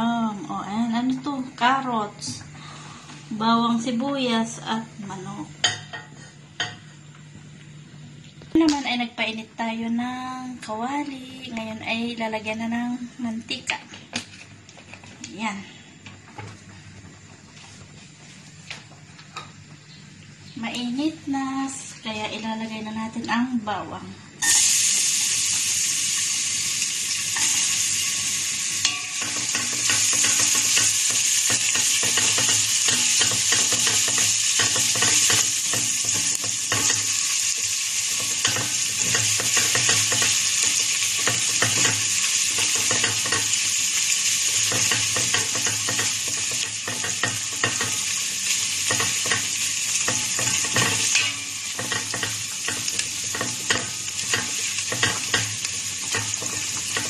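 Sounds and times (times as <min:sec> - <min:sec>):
garlic sizzling in hot oil: 0:24.4 - 0:57.0
spatula stirring in a pot: 0:38.0 - 0:57.0.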